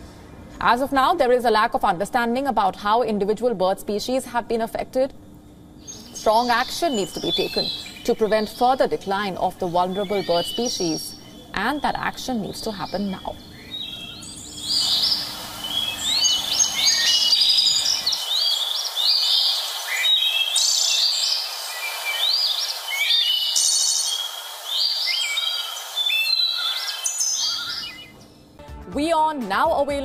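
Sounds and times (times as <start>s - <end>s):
birds singing: 5.7s - 28.6s
faint forest hiss: 5.8s - 28.2s.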